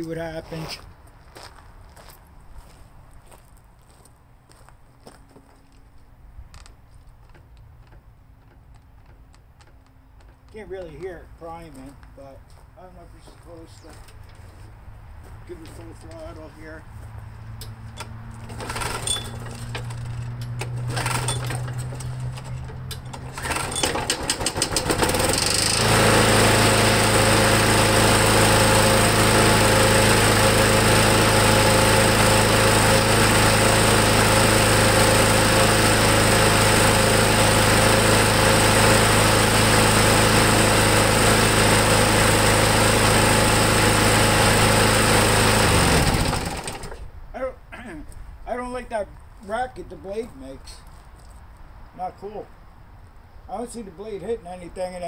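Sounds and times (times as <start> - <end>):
push mower engine running: 17.8 - 47.1.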